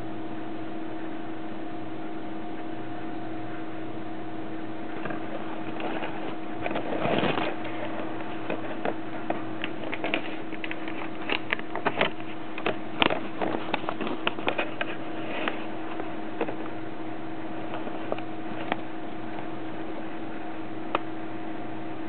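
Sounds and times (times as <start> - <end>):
electrical hum and hiss: 0.0 - 22.0
handling rustles: 4.9 - 20.5.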